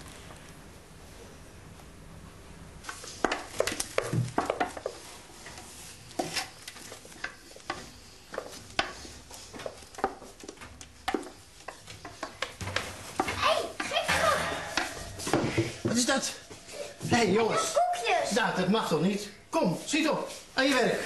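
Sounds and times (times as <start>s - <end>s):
utensils clinking on bowls and pans: 11.0s - 17.0s.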